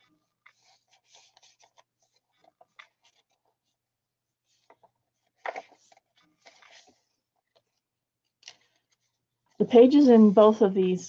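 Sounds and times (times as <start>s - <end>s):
page turning: 0.0s - 3.8s, 4.4s - 9.6s
paper rustling and clicks: 0.0s - 3.8s, 4.5s - 9.2s.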